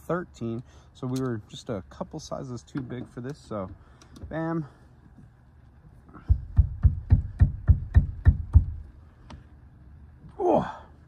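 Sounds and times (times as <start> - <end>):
sharp metallic knocks: 6.2 - 8.8.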